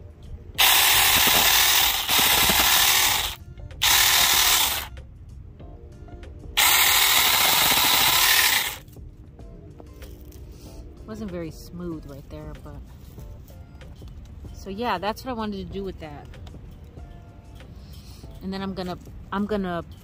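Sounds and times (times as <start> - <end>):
mini chainsaw cutting stalks: 0.6 - 4.9, 6.6 - 8.8.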